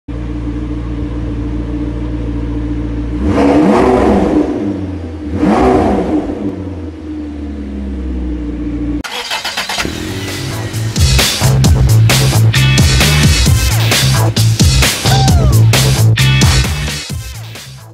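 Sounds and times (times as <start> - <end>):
car engine idling and revving: 0.1 - 17.9
intro music: 9.8 - 17.9.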